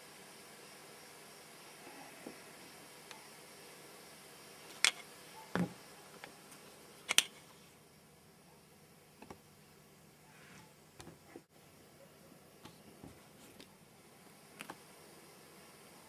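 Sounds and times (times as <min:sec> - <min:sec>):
faint steady hiss: 0:00.0 - 0:16.0
camcorder handling clicks and knocks: 0:07.1 - 0:07.3.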